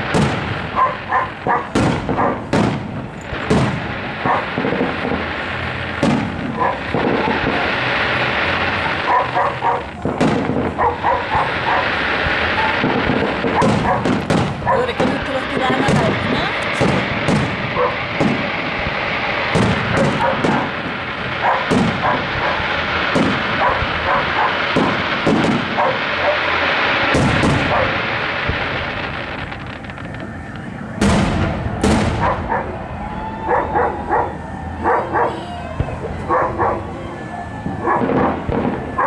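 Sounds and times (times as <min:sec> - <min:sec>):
fireworks banging: 0:00.0 - 0:39.0
fireworks crackling: 0:00.0 - 0:39.0
dog barking: 0:00.7 - 0:02.5, 0:04.2 - 0:04.5, 0:06.6 - 0:07.5, 0:09.0 - 0:09.9, 0:10.7 - 0:12.0, 0:12.6 - 0:15.0, 0:17.8 - 0:18.0, 0:20.0 - 0:20.8, 0:21.4 - 0:22.7, 0:23.6 - 0:25.0, 0:25.7 - 0:26.5, 0:27.6 - 0:28.0, 0:32.2 - 0:32.8, 0:33.5 - 0:35.4, 0:36.3 - 0:36.9, 0:37.8 - 0:38.4.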